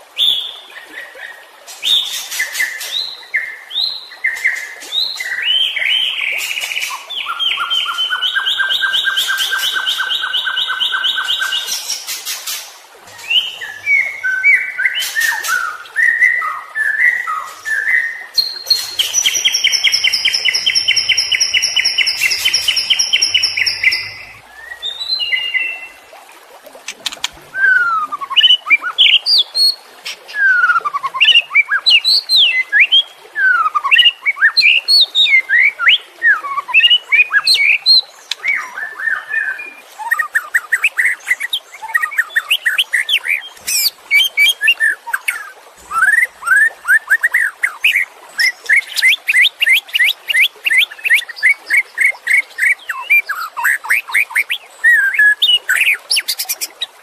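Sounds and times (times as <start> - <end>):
bird singing: 13.2 - 26.0.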